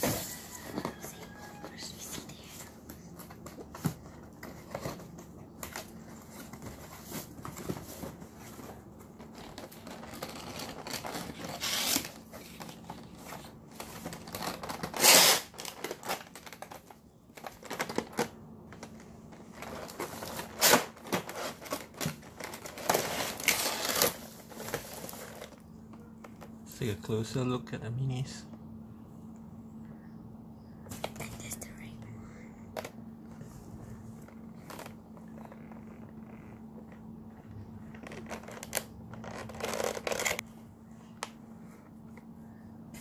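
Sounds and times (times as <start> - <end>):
packaging scraping and crinkling: 0.0 - 26.5, 34.0 - 40.5.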